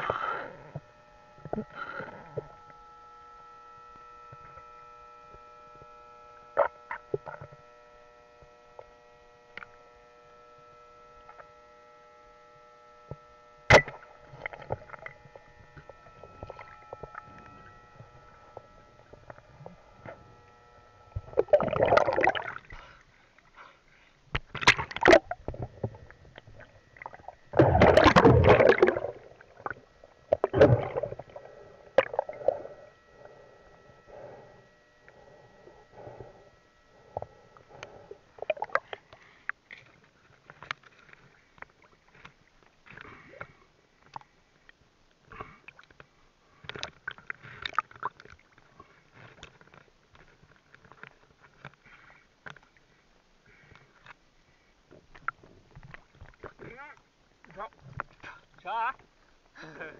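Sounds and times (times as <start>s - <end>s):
faint steady whine: 0.0s - 59.9s
bubbling and rushing water: 21.2s - 22.7s, 24.5s - 33.0s, 38.1s - 39.1s
sharp underwater clicks: 24.3s - 31.4s.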